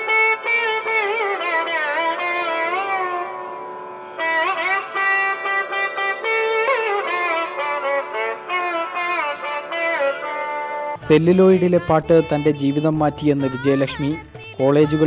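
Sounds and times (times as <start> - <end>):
plucked string with slide: 0.0 - 12.5.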